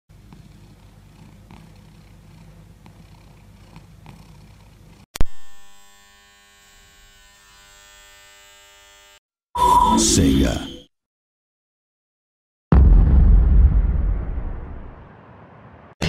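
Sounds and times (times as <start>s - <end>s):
cat purring: 0.2s - 5.1s.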